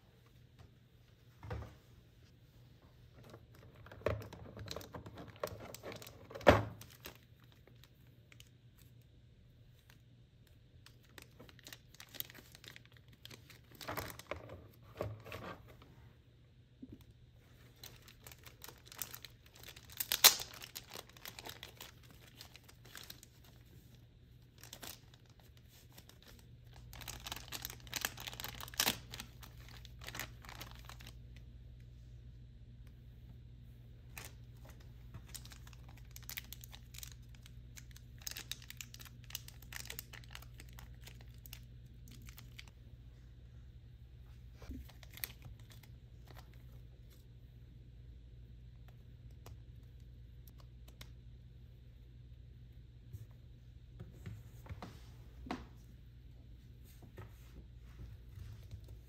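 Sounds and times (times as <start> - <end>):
plastic and paper crinkling: 3.2 - 8.9, 10.8 - 15.6, 17.4 - 31.2, 34.1 - 42.7, 44.6 - 47.2.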